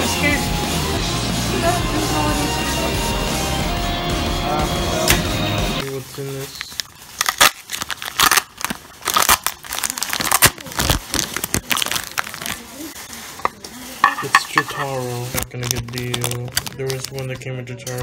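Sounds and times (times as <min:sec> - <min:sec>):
foil wrapper crinkling and tearing: 0:05.8 - 0:18.0.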